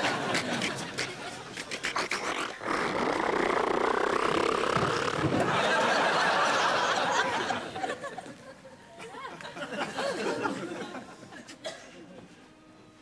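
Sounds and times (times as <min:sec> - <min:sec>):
studio audience laughing: 0:00.0 - 0:01.4, 0:05.3 - 0:11.5.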